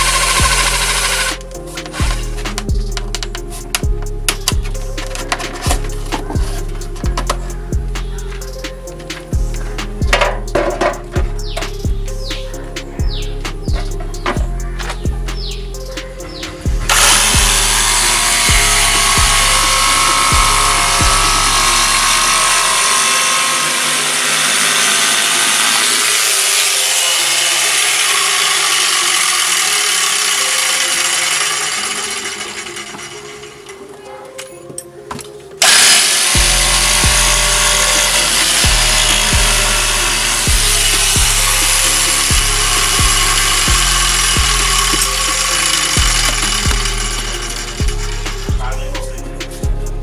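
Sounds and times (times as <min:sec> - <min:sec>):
electric jigsaw cutting wood: 0:00.0 - 0:02.6, 0:16.9 - 0:33.8, 0:35.6 - 0:48.5
music with steady bass beat: 0:00.0 - 0:23.1, 0:35.6 - 0:50.0.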